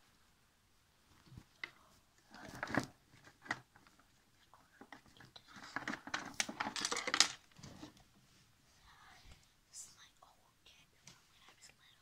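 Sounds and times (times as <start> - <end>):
rustling and crinkling: 1.0 - 9.4
knocks and clicks of toys: 5.6 - 7.4.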